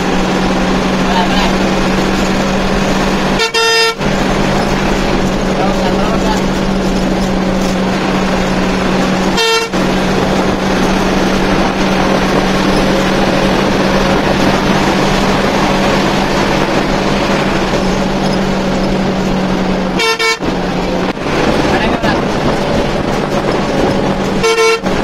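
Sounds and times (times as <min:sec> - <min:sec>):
coach engine and road drone: 0:00.0 - 0:25.0
short horn toot: 0:03.4 - 0:04.0, 0:09.4 - 0:09.8, 0:20.0 - 0:20.5, 0:24.4 - 0:24.9.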